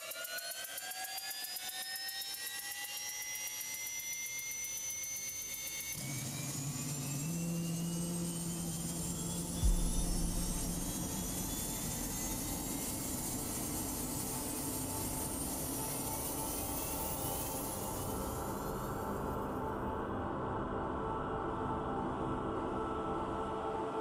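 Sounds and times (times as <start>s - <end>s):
turbine engine whining: 6.0s - 15.6s
deep thump: 9.6s - 11.7s
low steady hum: 9.6s - 12.2s.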